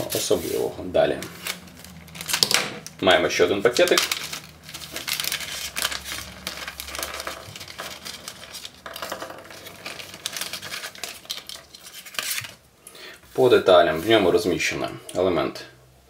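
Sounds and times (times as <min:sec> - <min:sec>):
plastic bag crinkling: 0:01.1 - 0:12.6.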